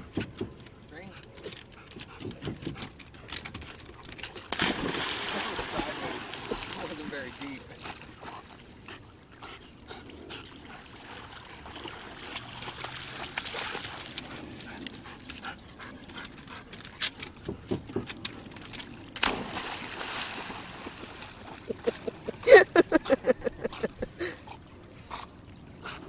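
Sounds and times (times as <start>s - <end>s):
water sloshing: 0.5s - 8.9s, 10.5s - 24.0s
dog splashing into water: 4.4s - 7.6s, 11.0s - 14.2s, 19.1s - 21.9s
churning water: 4.5s - 8.8s, 10.6s - 16.0s, 18.8s - 23.4s.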